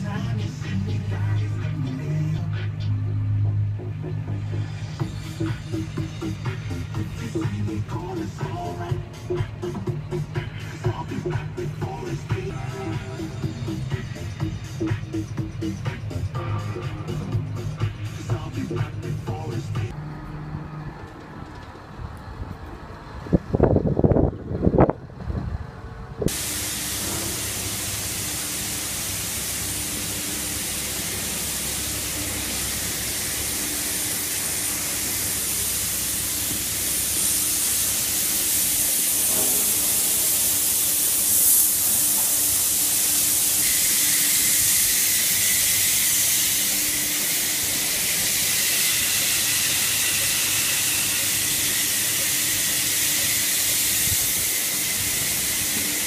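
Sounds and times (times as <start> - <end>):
wind noise on microphone: 21.5 - 26.4, 54.0 - 54.5
thin high whine: 26.3 - 56.0
water spraying on wet floor: 26.3 - 56.0.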